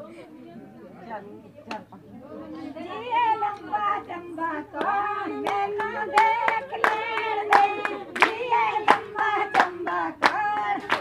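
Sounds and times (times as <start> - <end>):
voices singing: 1.7 - 11.0
hands clapping in time: 4.8 - 11.0.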